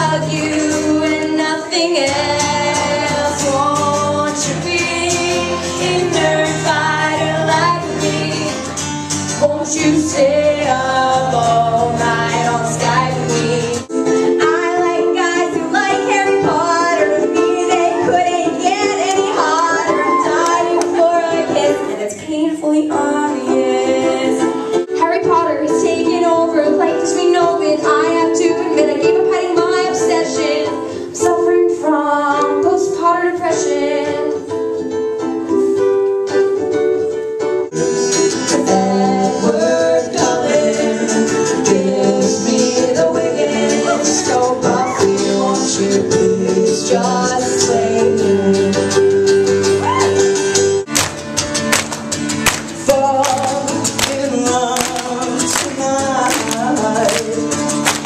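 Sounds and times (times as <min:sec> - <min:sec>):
strummed guitar: 0:00.0 - 0:22.1, 0:34.5 - 0:58.0
woman singing: 0:00.0 - 0:34.5, 0:38.5 - 0:50.2, 0:52.8 - 0:58.0.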